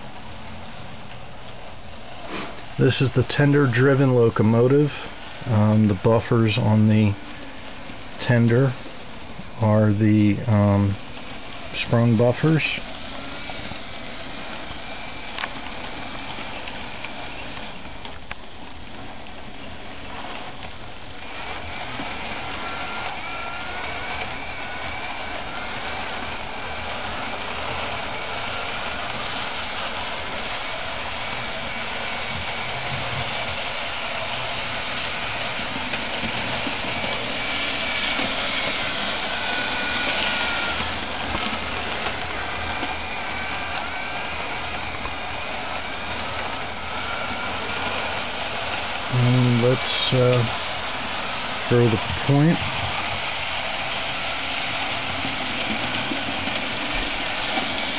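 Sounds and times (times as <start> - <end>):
model train motor whirring: 0.0 - 57.9
model train wheels on rails: 0.0 - 57.9.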